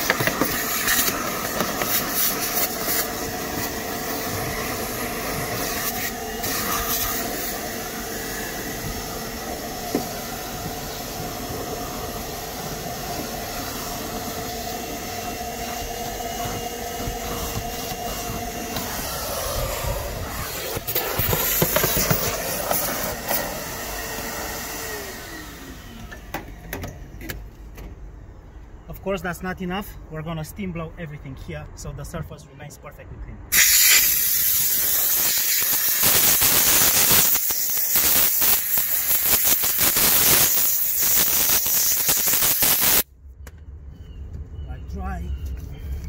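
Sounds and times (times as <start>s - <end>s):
vacuum cleaner running: 0.0s - 26.6s, 33.6s - 43.0s.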